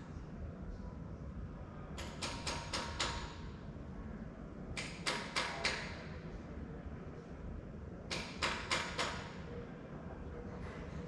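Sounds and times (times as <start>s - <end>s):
sharp knocks: 2.0s - 3.4s, 8.1s - 9.4s.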